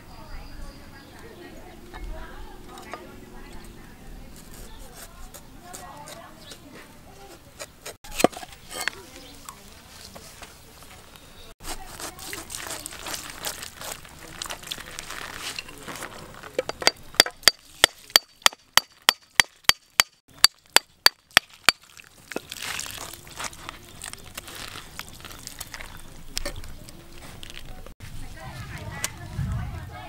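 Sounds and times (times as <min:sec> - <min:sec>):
fruit rustling apart: 0:07.9 - 0:16.6, 0:21.4 - 0:28.0.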